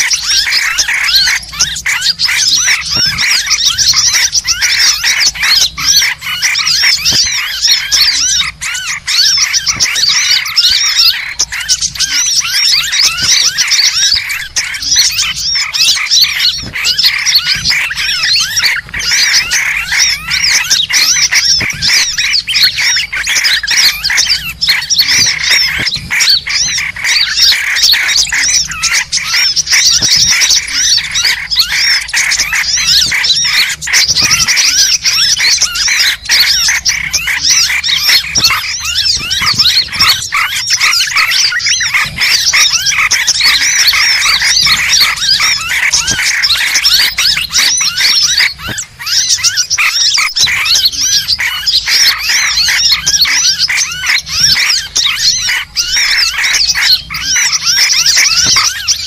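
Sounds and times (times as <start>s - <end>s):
small birds chirping: 0.0s - 59.0s.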